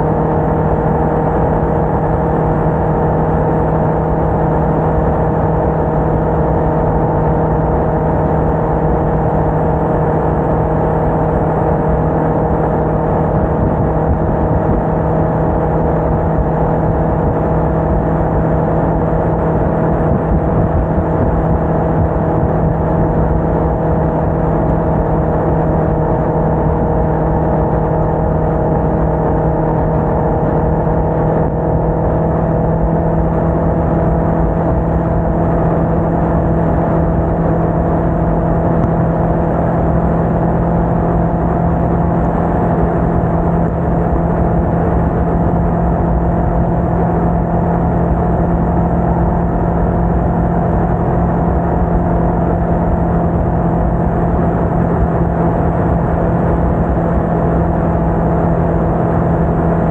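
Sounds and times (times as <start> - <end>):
motorcycle engine cruising: 0.0 - 59.9
wind rush on microphone: 0.0 - 59.9.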